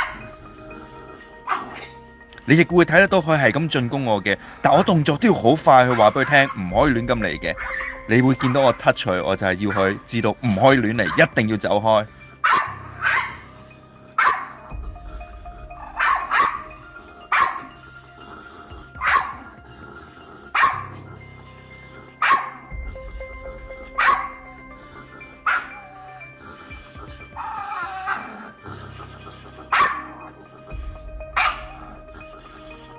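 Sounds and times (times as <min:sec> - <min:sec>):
dog barking aggressively: 0:01.4 - 0:01.9, 0:05.9 - 0:06.7, 0:12.4 - 0:13.5, 0:14.2 - 0:14.7, 0:16.0 - 0:16.7, 0:17.3 - 0:17.7, 0:19.0 - 0:19.5, 0:20.5 - 0:21.0, 0:22.2 - 0:22.7, 0:24.0 - 0:24.5, 0:25.4 - 0:26.0, 0:27.4 - 0:28.5, 0:29.6 - 0:30.4, 0:31.4 - 0:32.0.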